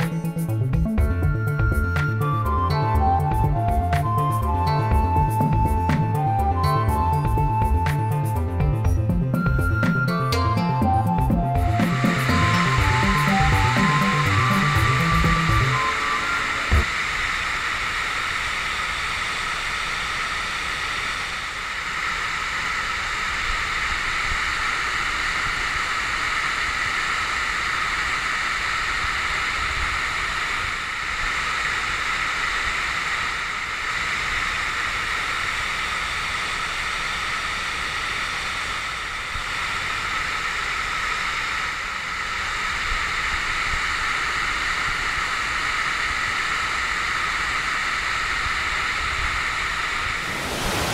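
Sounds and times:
waterfall rushing: 49.5 - 50.9.

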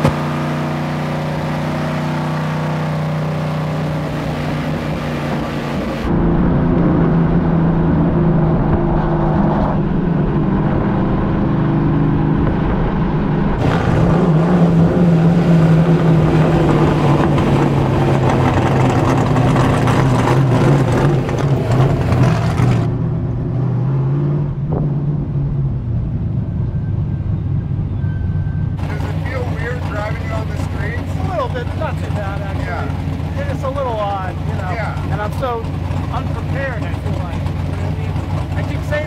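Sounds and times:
car engine exhaust note: 0.0 - 39.0.

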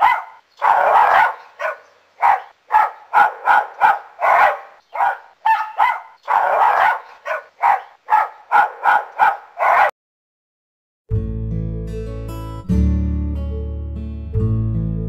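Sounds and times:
dog barking: 0.0 - 10.0.

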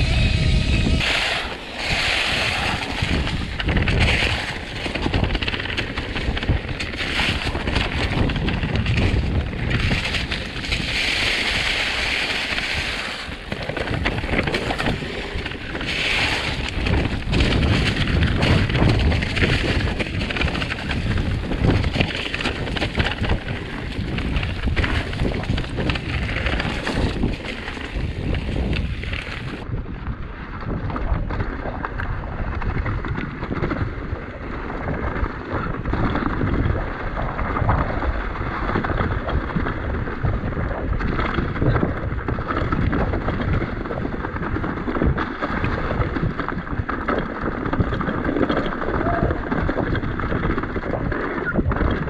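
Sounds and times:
tyres hissing on trail: 0.0 - 3.0
mountain bike rumbling and rattling: 0.0 - 52.0
wind buffeting microphone: 0.0 - 52.0.

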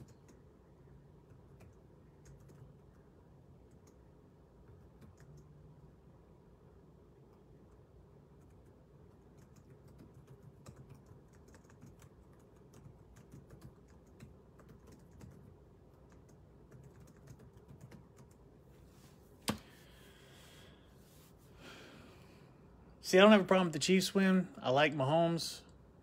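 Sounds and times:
keyboard typing: 0.0 - 0.6, 1.2 - 5.6, 7.2 - 18.5.

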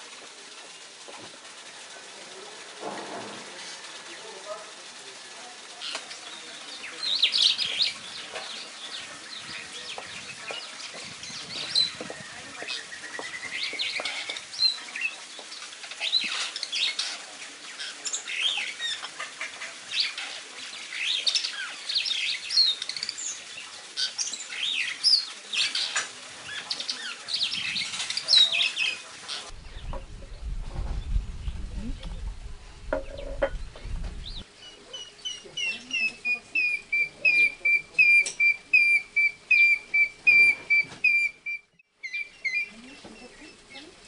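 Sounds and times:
bird singing chirps and whistles: 34.2 - 43.8.

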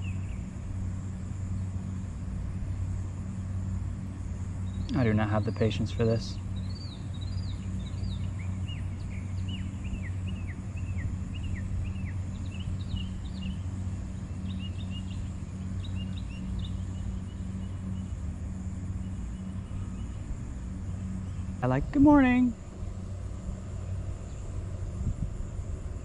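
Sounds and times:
bird chirping: 0.0 - 0.6, 4.6 - 23.2
faint high hiss: 0.0 - 26.0
low mechanical hum: 0.0 - 26.0.

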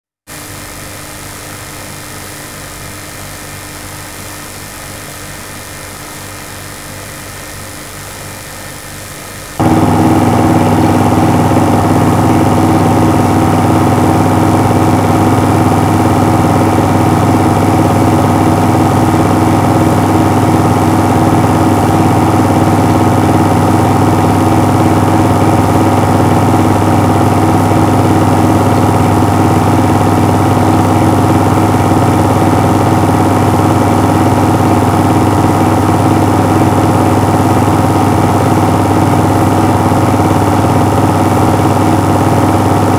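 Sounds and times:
film projector humming with flutter: 9.6 - 42.9.

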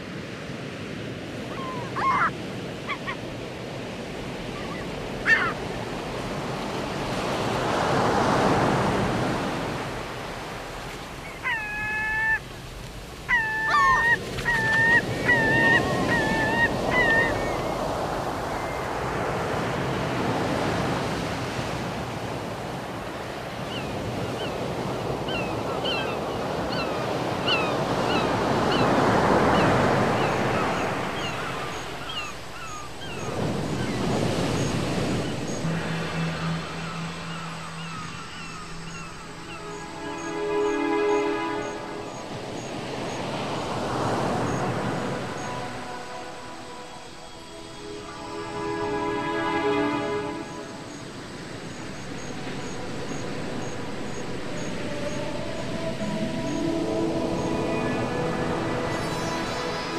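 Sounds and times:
surf breaking on the shore: 0.0 - 59.9
high whining calls: 30.9 - 42.4.

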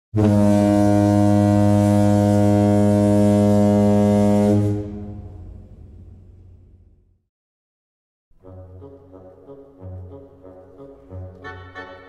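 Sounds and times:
ship's horn blast: 0.1 - 5.8.

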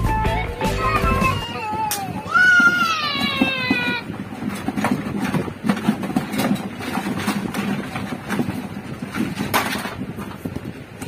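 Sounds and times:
toys clattering in cardboard box: 2.6 - 10.5.

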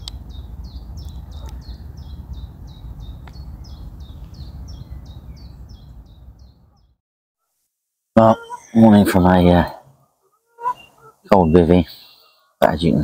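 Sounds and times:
small bird chirping: 0.0 - 7.0, 8.2 - 9.4, 10.0 - 12.6.

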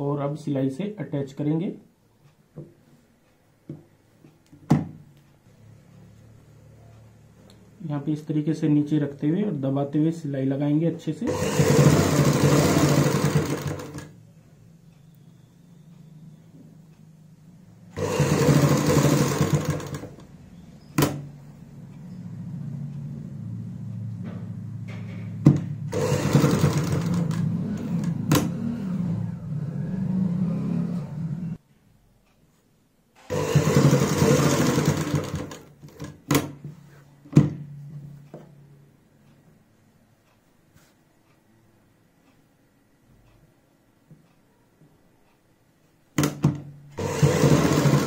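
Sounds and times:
sewing machine stitching: 11.2 - 14.2, 17.9 - 20.3, 25.6 - 29.3, 33.2 - 36.6, 46.2 - 48.0.

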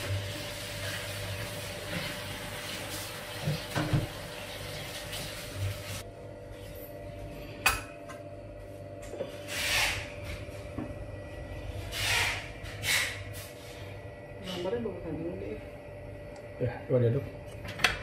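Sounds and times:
faint steady hum: 13.4 - 18.0.

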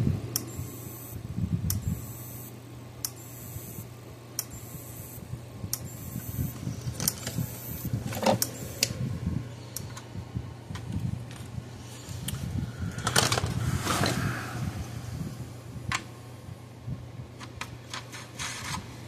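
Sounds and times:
steady low hum: 0.0 - 19.0
electric fence charger clicking: 8.1 - 9.0.

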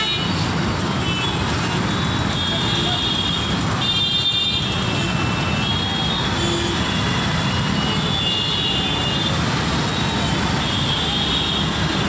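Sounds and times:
car horns: 0.0 - 0.4
traffic noise: 0.0 - 12.0.

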